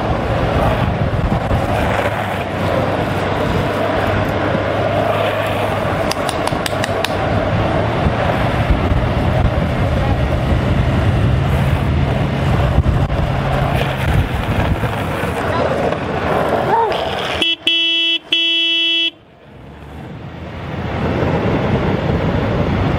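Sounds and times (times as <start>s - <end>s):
longboard wheels rolling on asphalt: 0.0s - 22.9s
wind rushing over microphone: 0.0s - 22.9s
quick clicks: 6.0s - 7.2s.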